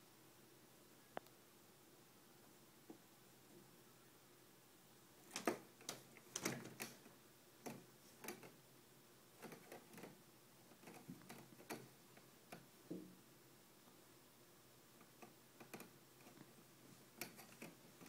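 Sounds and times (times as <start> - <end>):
kitten claws scratching screen mesh: 9.4 - 11.9, 17.2 - 18.0.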